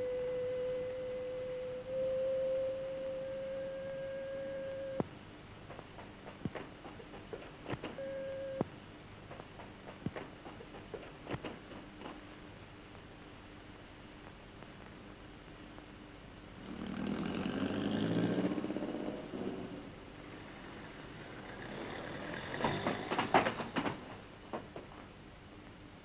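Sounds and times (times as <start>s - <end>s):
pure whistle-like tone: 0.0s - 5.0s, 8.0s - 8.6s.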